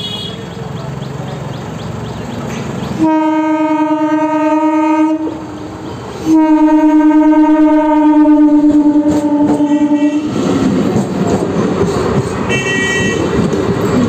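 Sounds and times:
train rumbling: 0:00.5 - 0:14.0
train horn blasts: 0:03.0 - 0:05.5, 0:06.2 - 0:10.4, 0:12.5 - 0:13.4.

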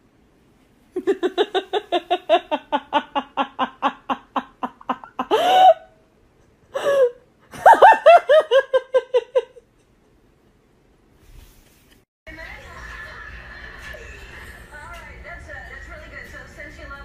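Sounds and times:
person laughing hard: 0:01.0 - 0:05.9, 0:06.7 - 0:09.6.

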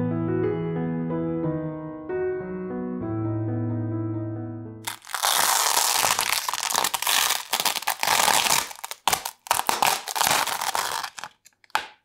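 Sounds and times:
masking tape peeled off canvas: 0:04.8 - 0:12.0.

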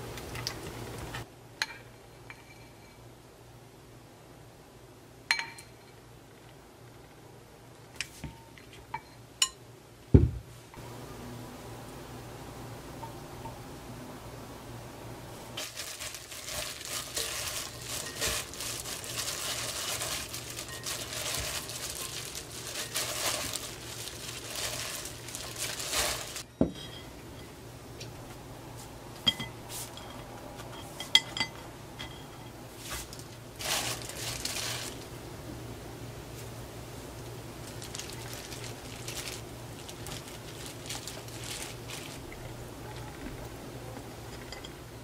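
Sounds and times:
plastic glove rustling: 0:15.5 - 0:26.5, 0:32.7 - 0:35.1, 0:37.6 - 0:42.4
wet vegetables being tossed: 0:15.6 - 0:26.5, 0:32.8 - 0:35.1, 0:37.6 - 0:42.4
sharp clinks on glass bowl: 0:29.3 - 0:30.2.

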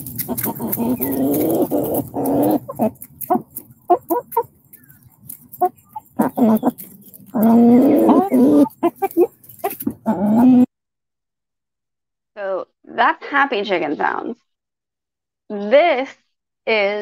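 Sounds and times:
hens trilling and clucking: 0:00.0 - 0:10.7.

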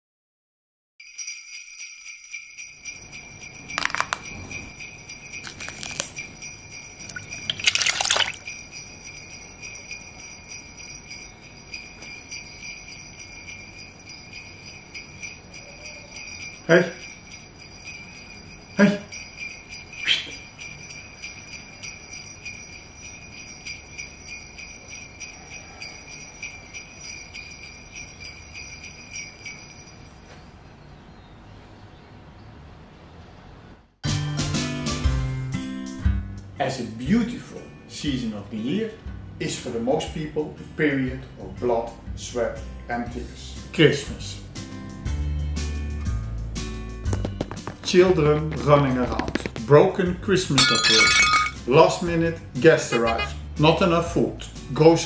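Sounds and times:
sleigh bells jingling: 0:01.0 - 0:30.3, 0:47.8 - 0:52.1, 0:52.9 - 0:54.2
person shouting: 0:52.9 - 0:53.4.

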